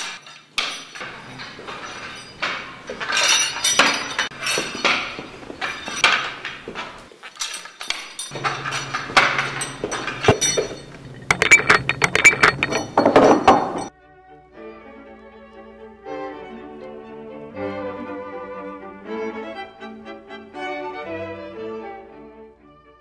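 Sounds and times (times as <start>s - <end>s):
door lock rattling: 8.0s - 13.9s.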